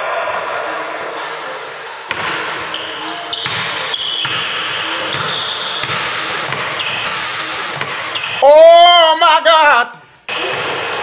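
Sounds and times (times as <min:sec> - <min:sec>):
sneakers squeaking on floor: 0:02.1 - 0:08.4.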